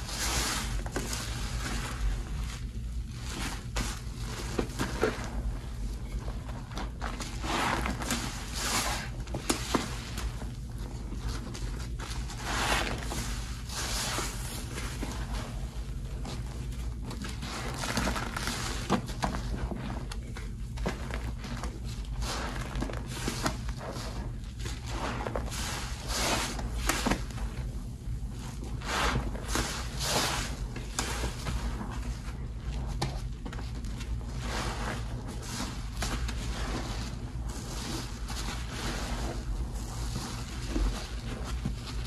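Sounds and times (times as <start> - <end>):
steady low hum: 0.0 - 42.0
wet sponge squelches: 0.0 - 42.0.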